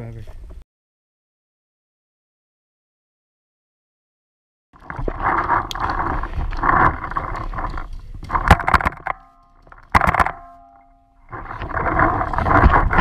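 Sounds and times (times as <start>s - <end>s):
wind noise: 4.8s - 10.5s, 11.2s - 13.0s
rustling: 4.8s - 13.0s
paintball shots: 9.9s - 10.8s.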